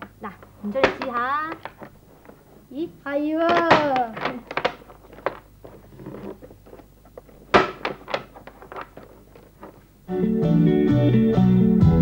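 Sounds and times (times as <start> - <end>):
mahjong tiles clacking: 3.5 - 9.8.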